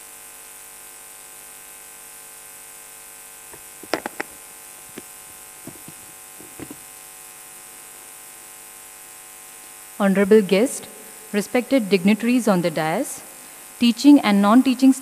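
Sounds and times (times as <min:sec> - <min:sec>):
microphone handling knocks: 0:03.6 - 0:06.8.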